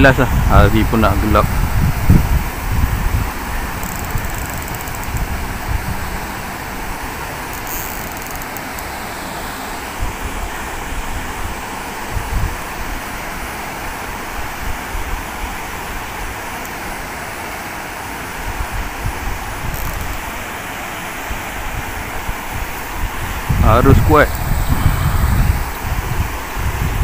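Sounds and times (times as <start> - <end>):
wind buffeting microphone: 0.0 - 7.5, 10.0 - 13.0, 18.4 - 20.4, 21.3 - 27.0
distant road traffic hum: 0.0 - 14.5.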